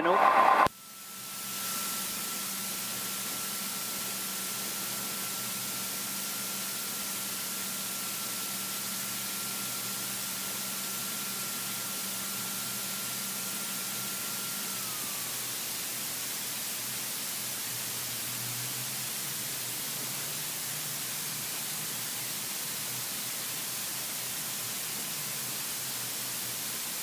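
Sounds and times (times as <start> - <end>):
thin high whine: 0.0 - 16.2
light aircraft engine and propeller: 0.8 - 27.0.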